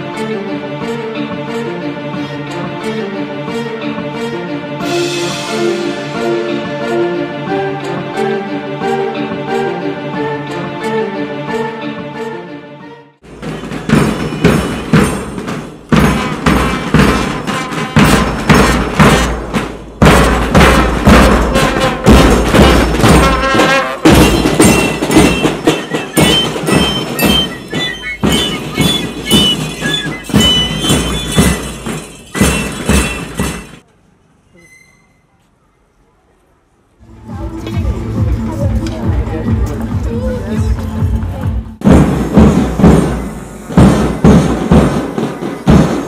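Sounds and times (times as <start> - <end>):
music with heavy drum beats: 13.2 - 33.8, 37.3 - 46.0.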